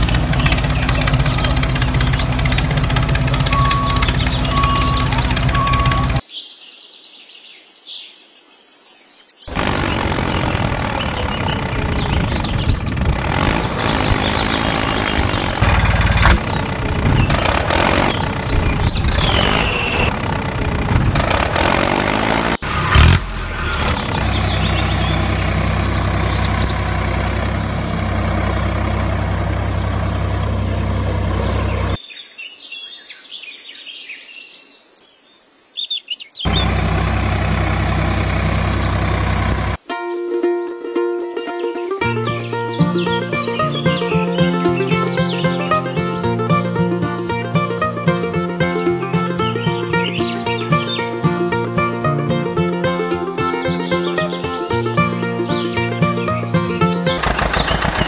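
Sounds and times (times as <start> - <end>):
small engine running: 0.0 - 6.2, 9.5 - 32.0, 36.5 - 39.8, 42.2 - 58.0
birds chirping: 0.0 - 39.9, 42.1 - 58.0.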